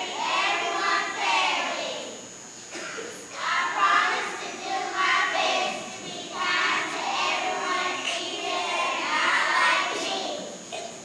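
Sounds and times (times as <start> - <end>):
children reciting in unison: 0.0 - 10.9.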